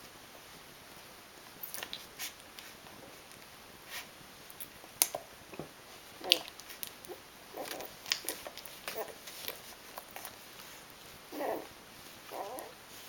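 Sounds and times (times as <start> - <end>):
puppies suckling: 6.2 - 13.0.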